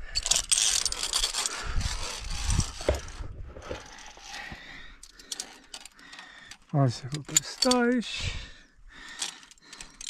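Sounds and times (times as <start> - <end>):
scraping against rock: 0.5 - 4.6.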